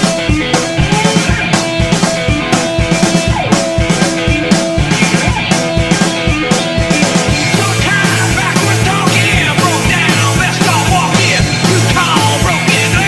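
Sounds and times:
drum kit beat: 0:00.0 - 0:13.0.

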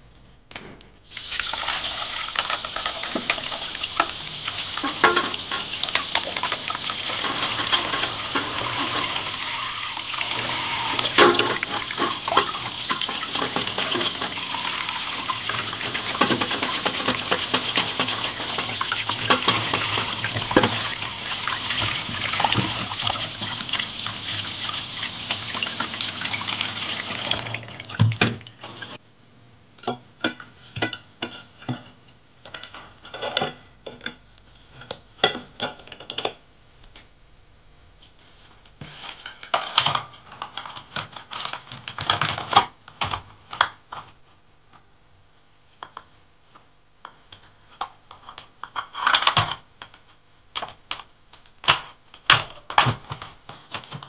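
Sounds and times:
tap water running: 0:01.1 - 0:29.0
crabs scrubbed by hand: 0:01.8 - 0:27.3.

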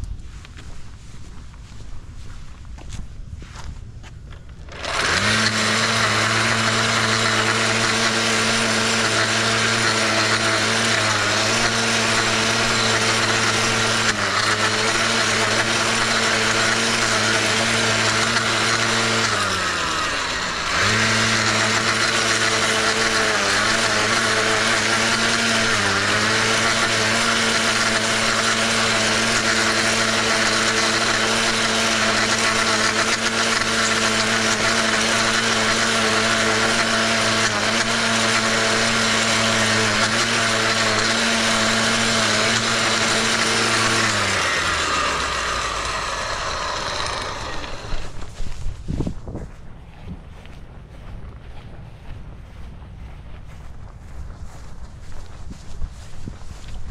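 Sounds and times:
electric motor whining: 0:04.4 - 0:51.5
blade cutting grass hiss: 0:04.7 - 0:49.2.

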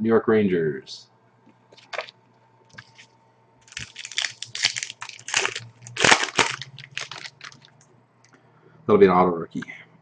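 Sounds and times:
wrapper crinkling as torn open: 0:01.8 - 0:02.1, 0:03.7 - 0:07.8.

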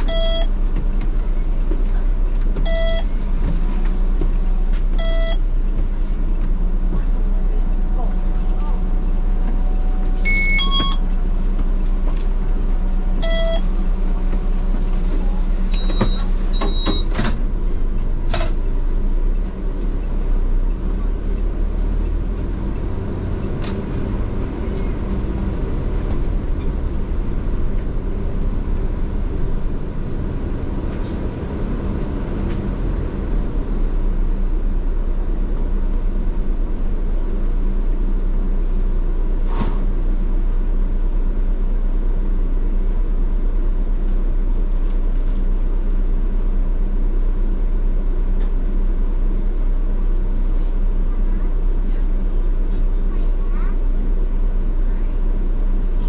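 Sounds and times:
short electronic beeps: 0:00.0 - 0:00.5, 0:02.6 - 0:03.1, 0:05.0 - 0:05.4, 0:10.2 - 0:11.0, 0:13.2 - 0:13.7, 0:15.7 - 0:17.2
diesel bus engine running: 0:00.0 - 0:56.0
hiss of air: 0:14.9 - 0:16.6.

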